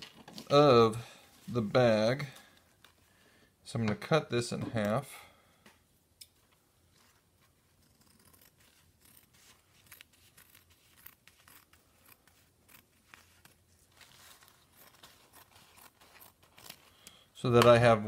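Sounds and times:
paper rustling: 0:08.6 - 0:17.0.

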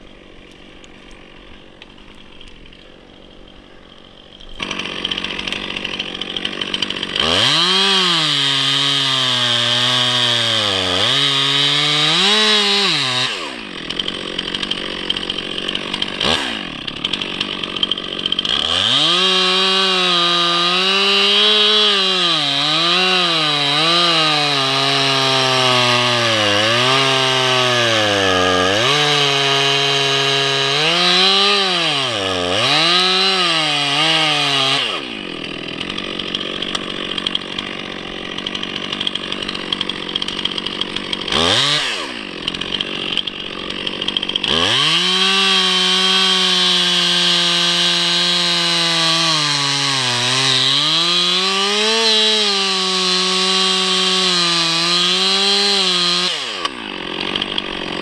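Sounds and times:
chainsaw cutting wood: 0:00.0 - 0:58.0
chainsaw idling unevenly: 0:00.0 - 0:58.0.

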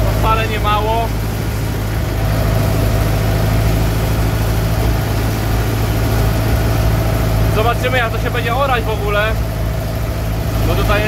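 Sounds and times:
tractor engine droning: 0:00.0 - 0:11.0.

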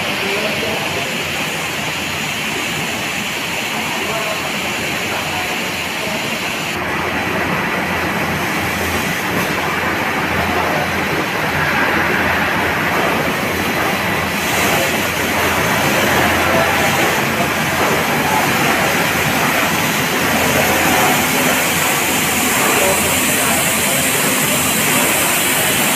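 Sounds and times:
steady machinery noise: 0:00.0 - 0:25.9.

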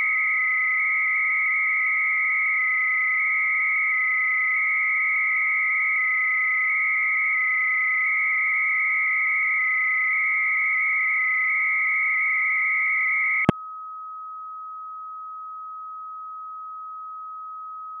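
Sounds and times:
phone line hiss: 0:00.0 - 0:13.5
warbling modem data tones: 0:00.0 - 0:13.5
steady low carrier tone: 0:11.8 - 0:18.0.

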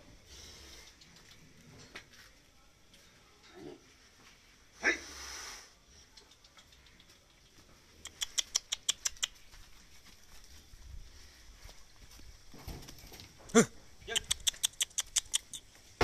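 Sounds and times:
sudden blow with a hiss: 0:04.8 - 0:05.8
sharp clicks: 0:06.1 - 0:09.4, 0:14.1 - 0:15.7.

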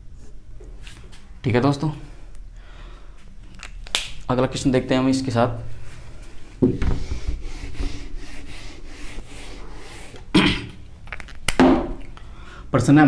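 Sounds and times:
duster rubbing on whiteboard: 0:06.7 - 0:10.3.

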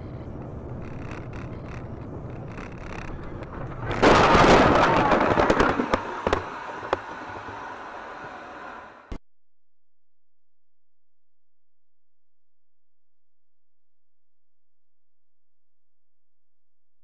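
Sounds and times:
road noise inside a car: 0:00.0 - 0:04.0, 0:05.3 - 0:09.1
car crash crunching impact: 0:03.6 - 0:06.5.

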